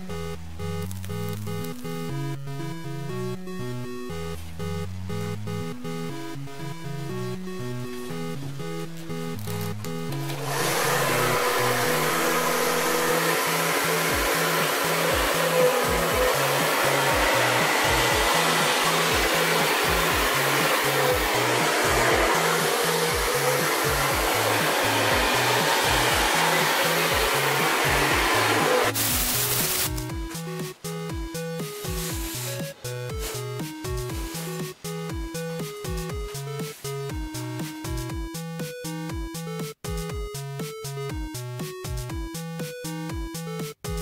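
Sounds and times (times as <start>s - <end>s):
electronic music with bass line: 0.0s - 44.0s
hair dryer blowing: 10.3s - 30.1s, 31.6s - 34.7s.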